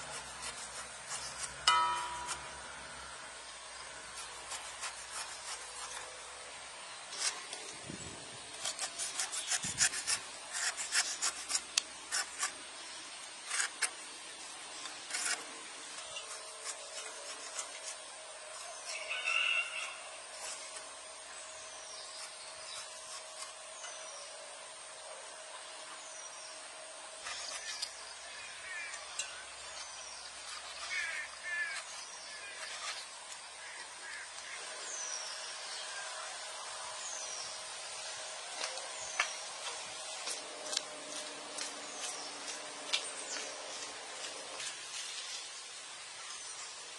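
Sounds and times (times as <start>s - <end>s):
knife cutting pineapple rind: 0.0s - 2.6s, 4.0s - 6.4s, 8.4s - 14.1s, 14.7s - 21.0s, 21.8s - 24.2s, 27.2s - 35.4s
birds calling: 25.8s - 44.7s.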